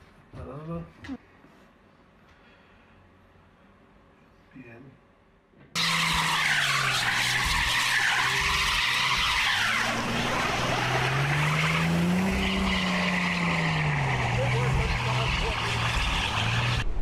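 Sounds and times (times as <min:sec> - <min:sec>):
wheels spinning in snow: 0:05.8 - 0:16.8
car engine revving: 0:05.8 - 0:17.0.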